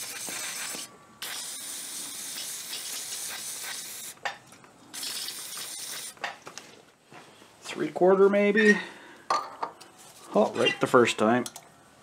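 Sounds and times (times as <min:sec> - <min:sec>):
aerosol spraying in hissing bursts: 0:00.0 - 0:04.2, 0:04.9 - 0:06.2.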